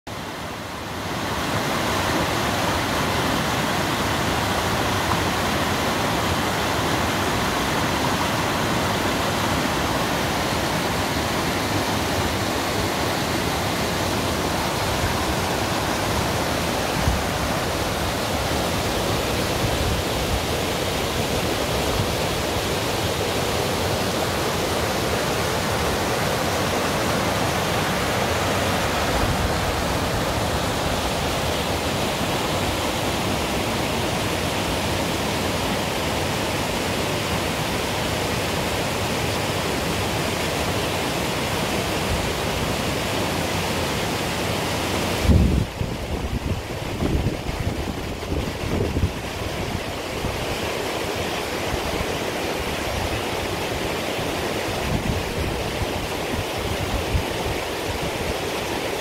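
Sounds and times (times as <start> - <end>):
stream rushing over boulders: 0.1 - 59.0.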